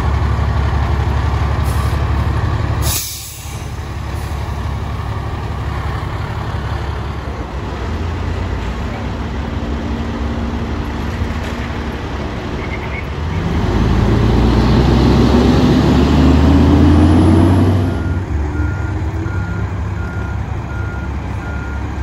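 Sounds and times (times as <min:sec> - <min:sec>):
truck engine revving: 0:00.0 - 0:22.0
reversing alarm beeps: 0:18.0 - 0:21.9.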